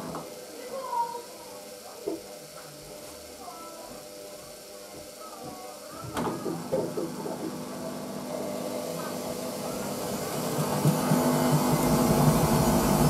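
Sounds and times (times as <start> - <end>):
washing machine running: 0.0 - 13.0.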